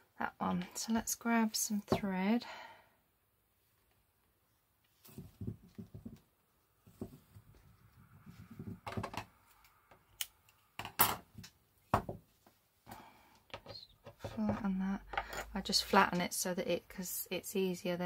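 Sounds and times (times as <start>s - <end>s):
rustling of craft supplies: 4.8s - 9.7s.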